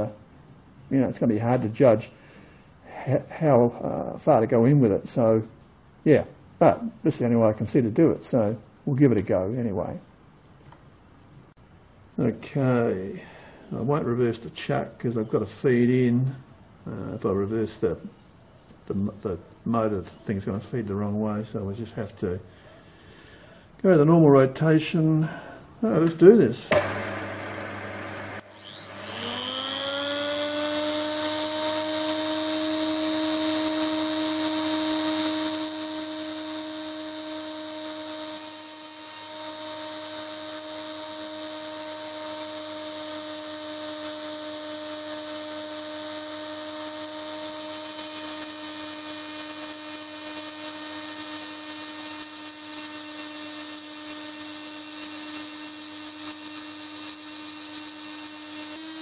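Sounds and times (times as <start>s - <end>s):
rotary grinder whining: 26.7s - 59.0s.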